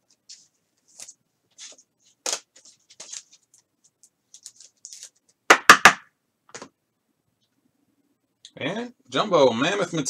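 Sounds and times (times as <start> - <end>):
trading cards rustling: 0.3 - 5.3.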